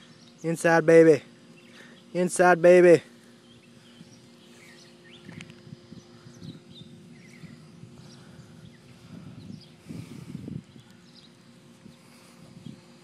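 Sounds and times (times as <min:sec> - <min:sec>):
steady low hum: 0:00.0 - 0:13.0
bird chirps: 0:01.5 - 0:02.3, 0:03.3 - 0:09.8, 0:10.6 - 0:12.9.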